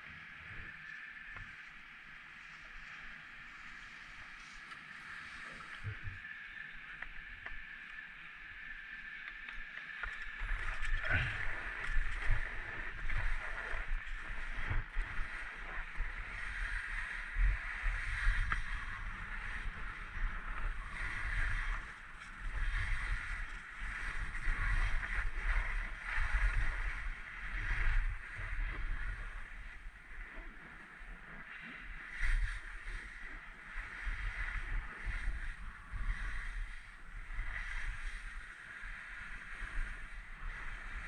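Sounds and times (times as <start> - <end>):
skis scraping over snow: 0.0 - 41.0
wind buffeting microphone: 9.1 - 41.0.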